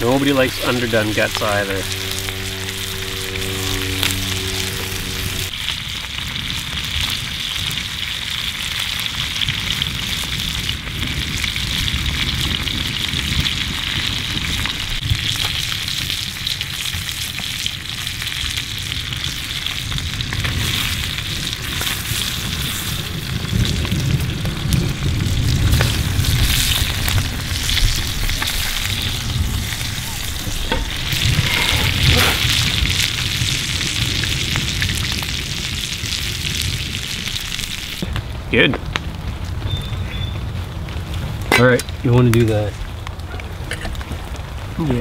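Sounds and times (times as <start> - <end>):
held musical chord: 0.0 - 5.6
fire popping: 0.0 - 45.0.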